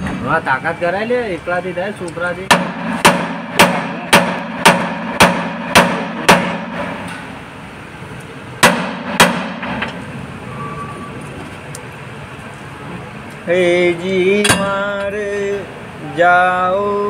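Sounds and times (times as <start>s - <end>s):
hammer striking steel: 2.4s - 7.4s, 8.6s - 10.1s, 14.4s - 15.1s.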